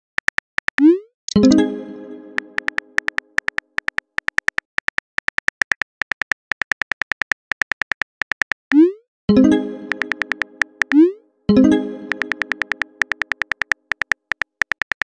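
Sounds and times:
phone keyboard typing clicks: 0.1 - 0.9, 2.4 - 8.8, 9.8 - 11.1, 12.0 - 15.0
chime: 1.4 - 2.6, 9.3 - 10.6.

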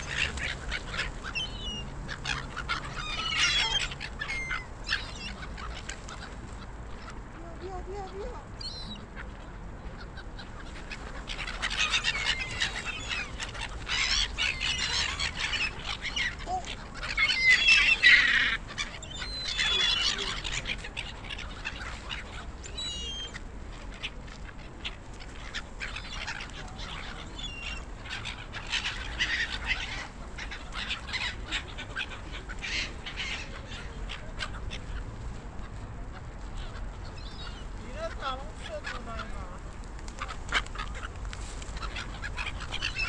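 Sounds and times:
gulls squawking: 0.0 - 43.0.

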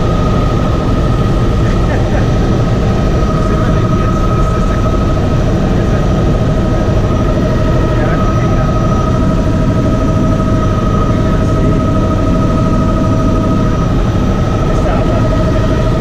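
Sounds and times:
helicopter engine and rotor rumble: 0.0 - 16.0
high engine whine: 0.0 - 16.0.

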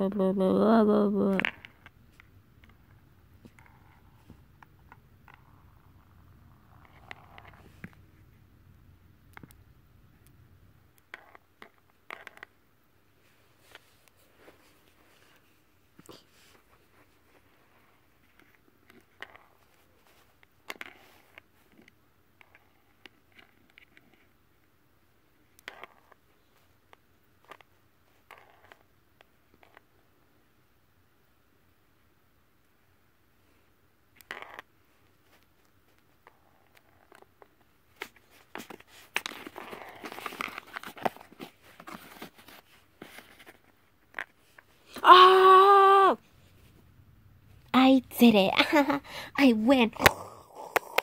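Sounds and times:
clicks and taps of game pieces: 50.0 - 51.0.

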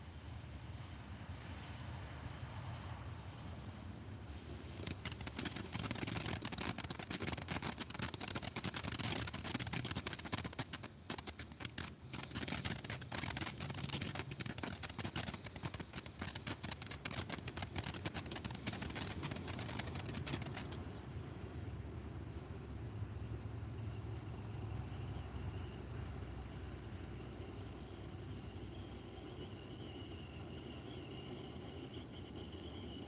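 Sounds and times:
firework crackling and hissing: 0.0 - 23.4.

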